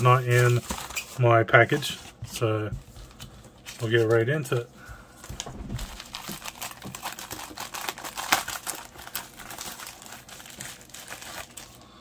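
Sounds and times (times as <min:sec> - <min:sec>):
plastic envelope crinkling: 0:00.0 - 0:02.2, 0:05.2 - 0:11.9.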